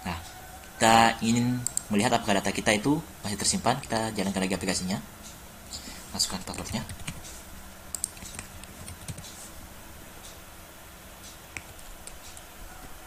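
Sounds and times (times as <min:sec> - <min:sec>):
keyboard keystrokes: 0:07.9 - 0:09.4.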